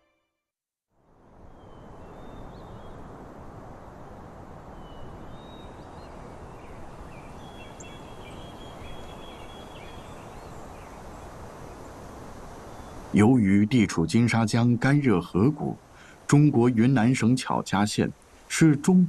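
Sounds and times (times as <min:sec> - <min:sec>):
birds chirping and whistling: 0:06.6 - 0:10.9.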